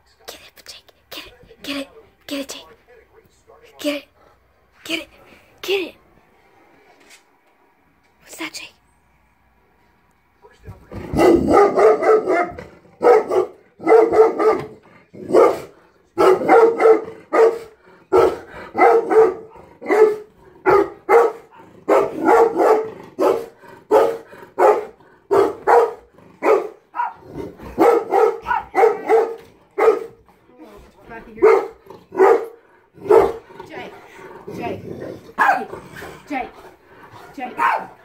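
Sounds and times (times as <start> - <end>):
dog barking: 11.1 - 30.2, 31.4 - 33.4, 35.4 - 35.7, 37.6 - 38.0.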